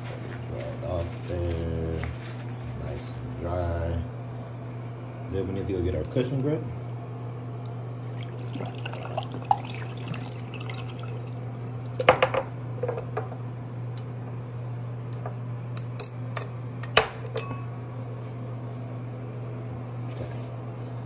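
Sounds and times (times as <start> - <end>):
steady low hum: 0.0 - 21.0
water pouring into sink: 8.0 - 11.3.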